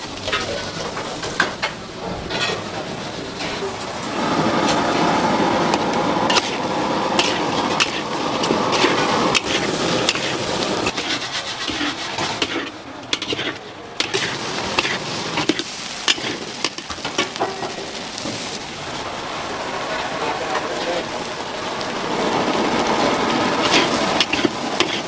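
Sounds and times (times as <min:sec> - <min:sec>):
utensils rubbing and scraping: 0:07.2 - 0:17.3, 0:23.6 - 0:25.0.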